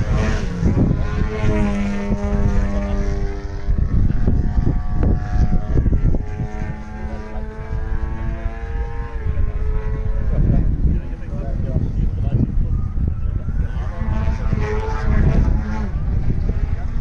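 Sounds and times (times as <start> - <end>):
propeller aircraft engine: 0.0 - 8.0
wind rumble on microphone: 0.0 - 17.0.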